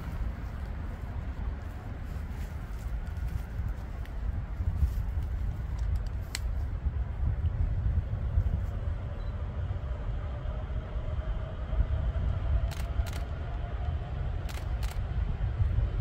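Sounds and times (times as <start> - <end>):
heavy low rumble: 0.0 - 16.0
locomotive whine: 8.3 - 16.0
sharp clicks: 12.7 - 13.3, 14.4 - 15.0.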